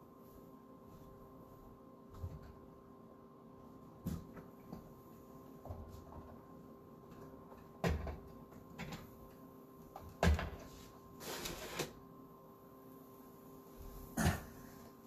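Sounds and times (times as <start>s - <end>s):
faint electrical hum: 0.0s - 15.0s
rustling scrape: 11.2s - 11.9s.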